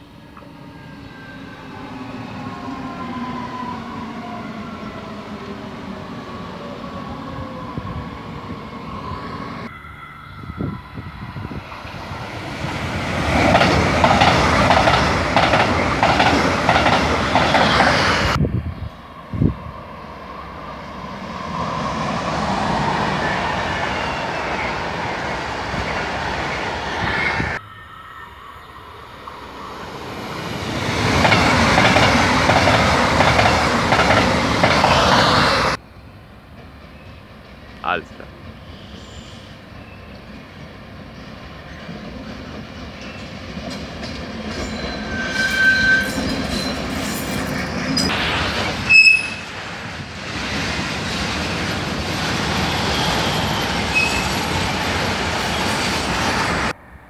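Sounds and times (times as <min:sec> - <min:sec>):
rush of passing train: 0:00.0 - 0:57.0
train wheels clickety-clack: 0:12.7 - 0:18.1, 0:31.0 - 0:35.5, 0:41.8 - 0:45.0.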